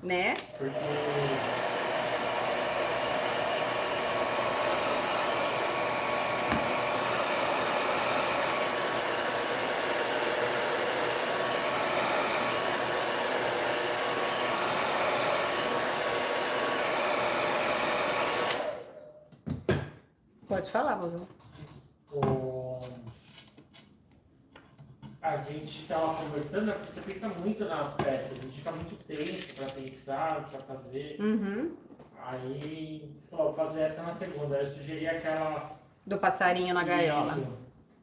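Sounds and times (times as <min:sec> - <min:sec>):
hair dryer running: 0:00.2 - 0:19.1, 0:36.8 - 0:37.5.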